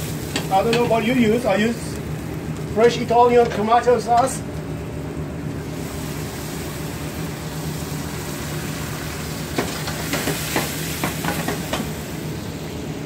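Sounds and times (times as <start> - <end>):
sauce sizzling in a pan: 0.0 - 2.7, 5.6 - 13.0
kitchen hum: 0.0 - 13.0.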